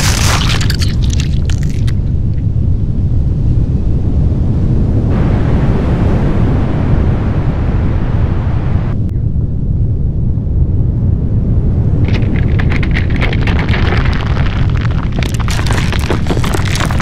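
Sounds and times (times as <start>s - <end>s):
deep rumble: 0.0s - 17.0s.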